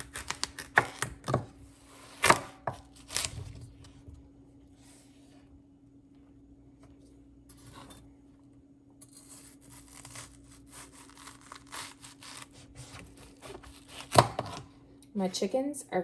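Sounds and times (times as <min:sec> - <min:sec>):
knife cutting watermelon: 0:00.0 - 0:03.6, 0:09.0 - 0:14.7.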